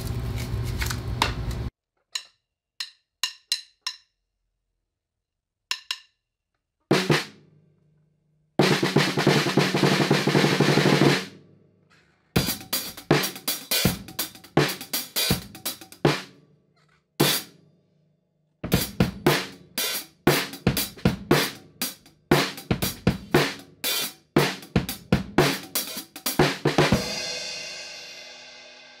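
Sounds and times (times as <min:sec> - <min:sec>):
drum kit snare and cymbal hits: 0:06.9 - 0:07.4, 0:08.6 - 0:11.3, 0:12.4 - 0:16.3, 0:17.2 - 0:17.5, 0:18.6 - 0:29.0.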